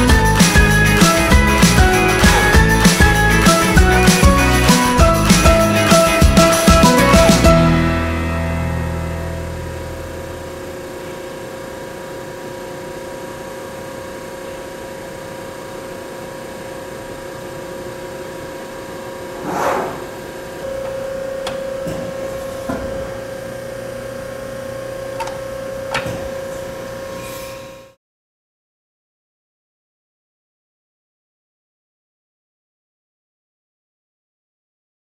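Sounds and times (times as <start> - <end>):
hydraulic press brake humming: 19.2 - 27.7.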